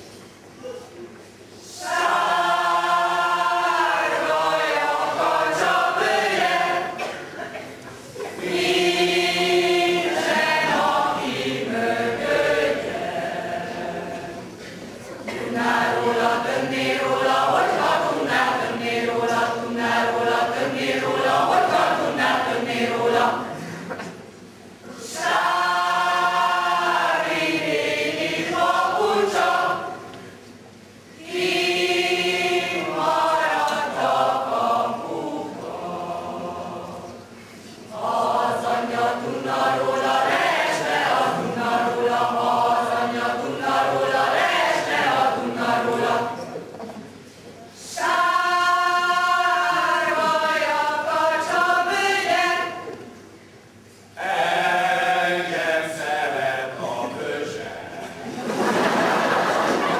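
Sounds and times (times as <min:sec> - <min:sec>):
mixed choir singing: 0:01.6 - 0:24.2, 0:24.8 - 0:30.3, 0:31.1 - 0:46.8, 0:47.8 - 0:53.2, 0:54.2 - 0:59.9.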